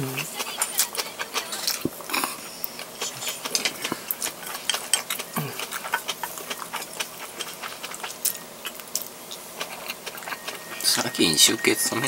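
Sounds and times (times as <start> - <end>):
chewing with mouth clicks: 0.0 - 12.0.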